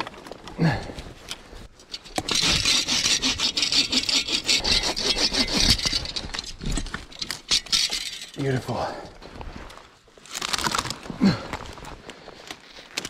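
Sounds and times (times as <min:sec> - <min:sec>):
bow saw cutting a log: 0:02.2 - 0:06.2.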